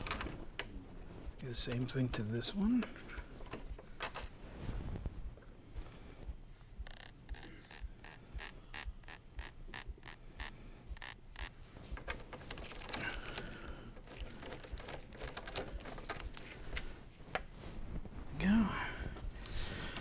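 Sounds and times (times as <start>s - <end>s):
tool handling and rubbing: 6.6s - 13.0s
socket ratchet clicking: 6.8s - 11.6s.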